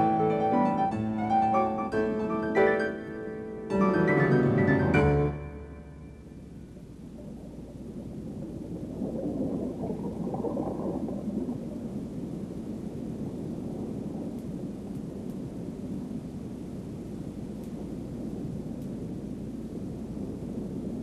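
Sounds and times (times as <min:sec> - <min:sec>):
low dull rumble: 0:04.3 - 0:21.0.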